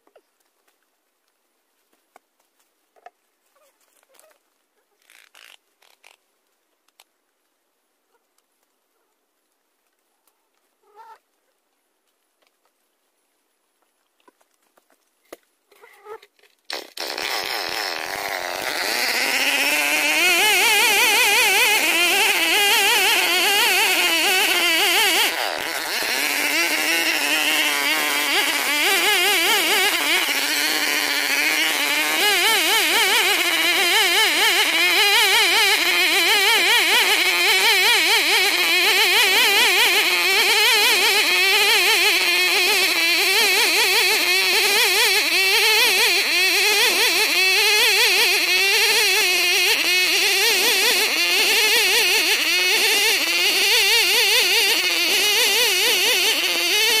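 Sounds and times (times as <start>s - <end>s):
chainsaw cutting wood at full throttle: 16.7s - 57.0s.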